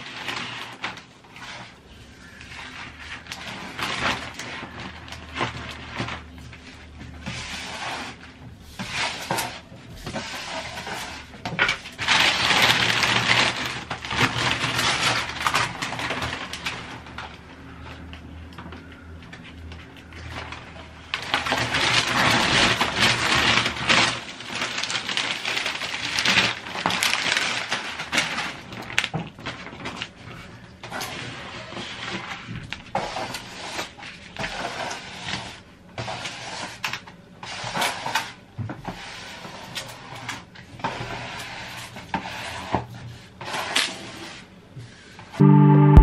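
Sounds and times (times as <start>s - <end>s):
plastic film crackling: 0.0s - 35.7s.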